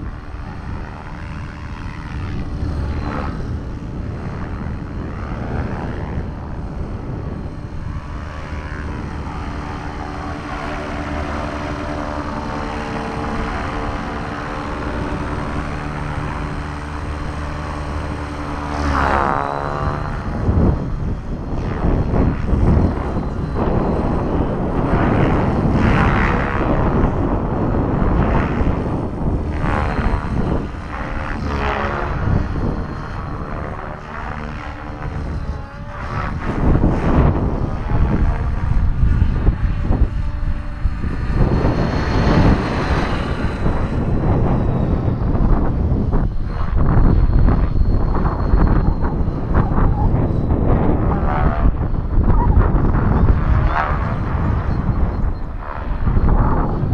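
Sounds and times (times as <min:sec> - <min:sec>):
rc helicopter motor whine: 0:00.0 - 0:56.9
wind buffeting microphone: 0:00.0 - 0:56.9.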